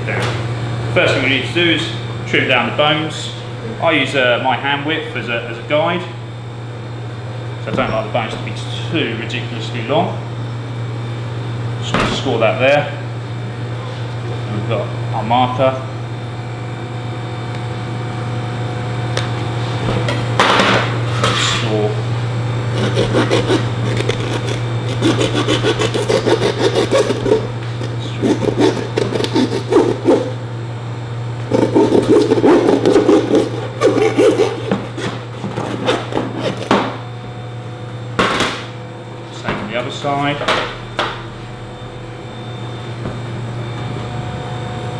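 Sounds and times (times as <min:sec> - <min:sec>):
steady low hum: 0:00.0 - 0:44.9
hand saw rasping through bone: 0:22.7 - 0:30.4, 0:31.5 - 0:36.8.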